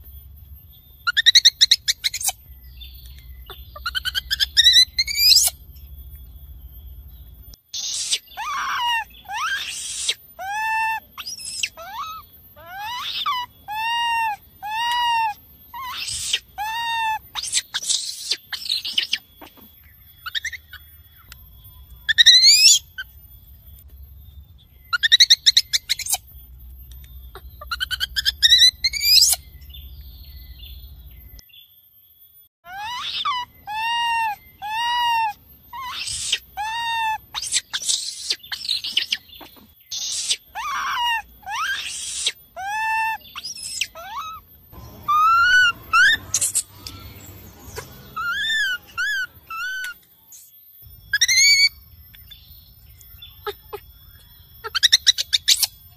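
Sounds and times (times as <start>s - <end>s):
monkey screams and squeals: 1.0s - 2.5s, 3.4s - 5.6s, 7.7s - 21.3s, 22.0s - 23.2s, 24.9s - 26.4s, 27.2s - 29.5s, 32.6s - 50.5s, 51.1s - 52.4s, 53.2s - 55.9s
baby monkey calling: 1.0s - 5.7s, 7.7s - 23.2s, 24.9s - 26.3s, 26.9s - 29.8s, 32.6s - 50.0s, 51.0s - 52.4s, 53.0s - 55.9s.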